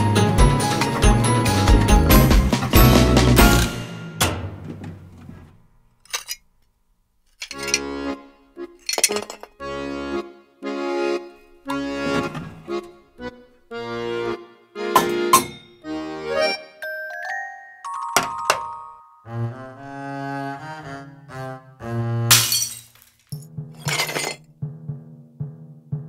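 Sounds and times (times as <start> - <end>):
accordion playing bouncy chords: 7.6 - 8.7, 9.6 - 17.8, 18.9 - 22.2.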